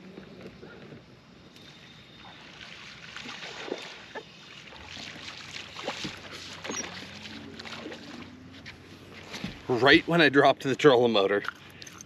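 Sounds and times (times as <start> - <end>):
low steady hum: 0.0 - 12.0
fish splashing at water surface: 1.6 - 8.4.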